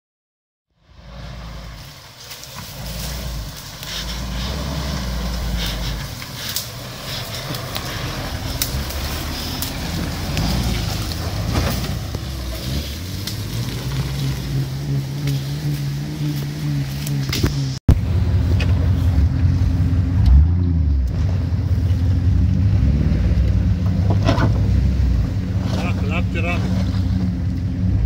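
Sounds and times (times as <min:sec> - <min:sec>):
pickup engine running under load: 0:00.8 - 0:28.0
sharp cracks and clicks: 0:07.4 - 0:12.2.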